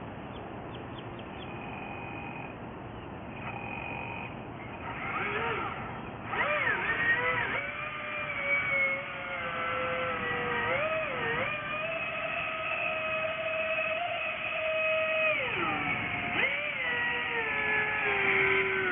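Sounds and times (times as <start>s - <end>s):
small boat motor whining: 1.0s - 18.9s.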